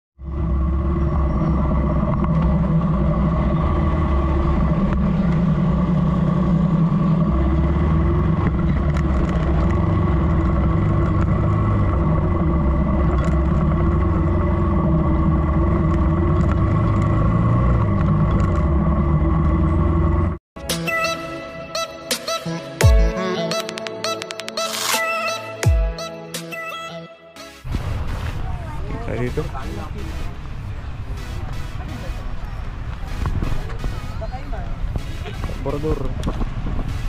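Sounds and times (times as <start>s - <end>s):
motorcycle engine running: 0.2s - 20.4s
wind and road noise: 0.2s - 20.4s, 27.6s - 37.0s.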